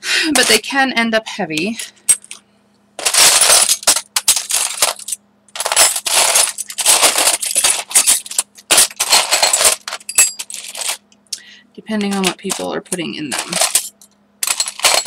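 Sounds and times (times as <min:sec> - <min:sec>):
small hard objects clinking: 0:03.0 - 0:11.0, 0:13.3 - 0:15.0.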